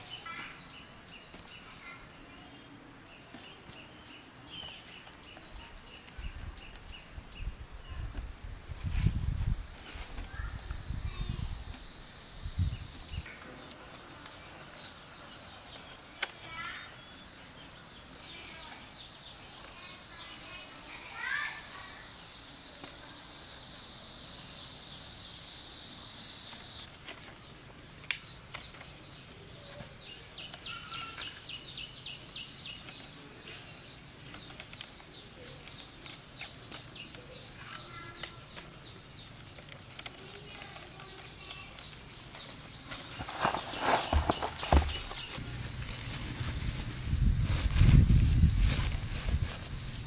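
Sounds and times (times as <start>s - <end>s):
insect chirping: 0.0s - 50.0s
insect buzzing: 19.2s - 27.5s, 35.0s - 50.0s
bird chirping: 28.2s - 48.5s.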